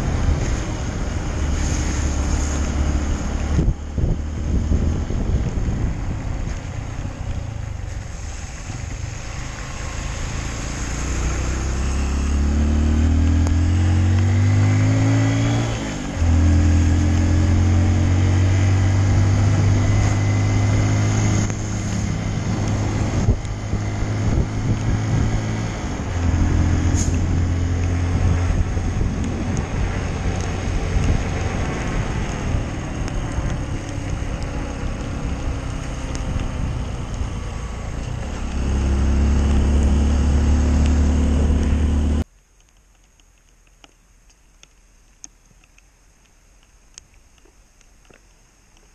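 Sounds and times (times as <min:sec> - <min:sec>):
motorcycle engine revving: 0:07.3 - 0:42.2.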